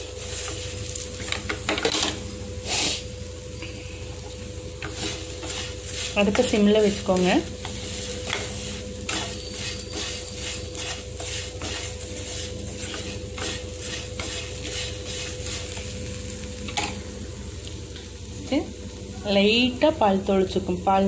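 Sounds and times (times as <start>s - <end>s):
steady low hum: 0.0s - 21.0s
spatula scraping frying pan: 0.1s - 3.0s, 4.8s - 16.0s.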